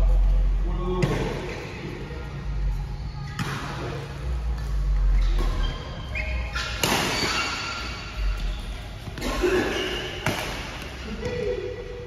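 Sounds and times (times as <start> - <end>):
rackets hitting a shuttlecock: 6.5 - 8.1, 9.9 - 11.6.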